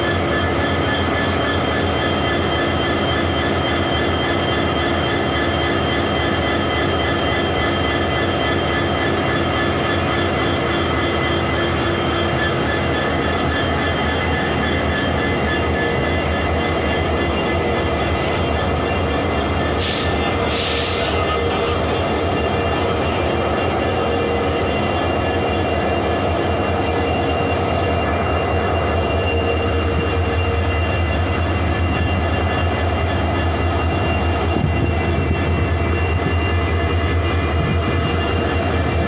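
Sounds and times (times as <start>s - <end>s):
diesel locomotive engine drone: 0.0s - 39.0s
air hissing: 19.8s - 21.2s.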